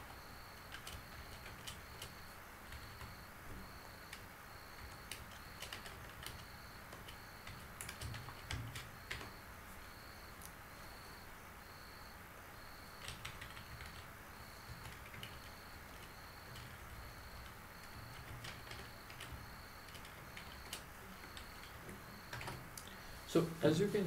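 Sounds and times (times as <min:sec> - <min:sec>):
keyboard typing: 0:00.1 - 0:09.4, 0:12.9 - 0:23.0.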